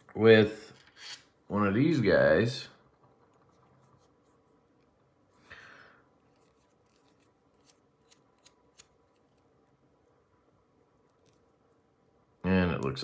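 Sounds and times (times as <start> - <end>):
tool scraping: 0.5 - 1.4.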